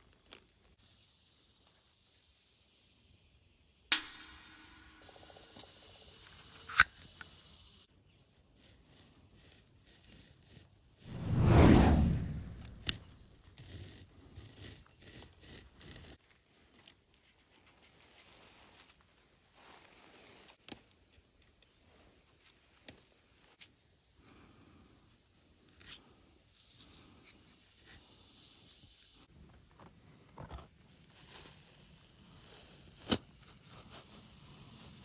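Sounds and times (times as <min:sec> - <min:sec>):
sharp crack: 0:03.9 - 0:05.4
knife scraping tree bark: 0:08.3 - 0:11.1, 0:12.7 - 0:16.2.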